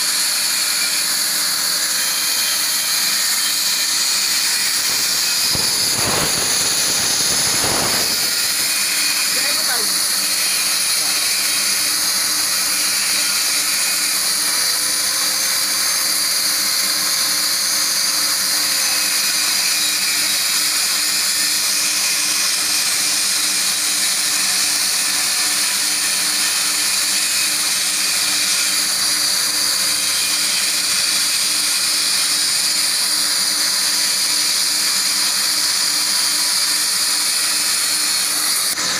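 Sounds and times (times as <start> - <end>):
plasma torch hissing: 2.7 - 13.5.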